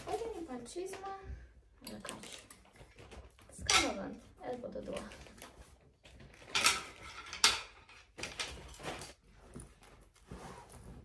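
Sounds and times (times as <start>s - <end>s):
clothes rustling into travel bag: 8.2s - 11.0s.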